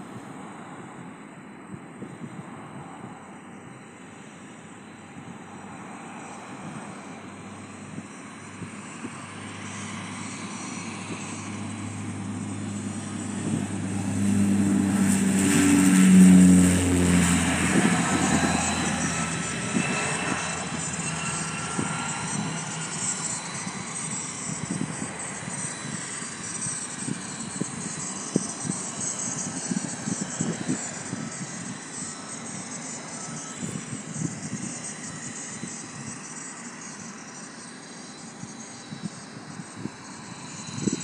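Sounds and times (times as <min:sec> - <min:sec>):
jet airliner engines roaring: 0:00.0 - 0:41.0.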